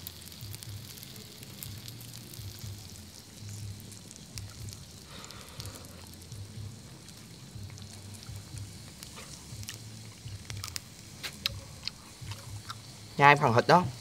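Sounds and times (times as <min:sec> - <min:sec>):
charcoal grill crackling: 0:00.0 - 0:14.0.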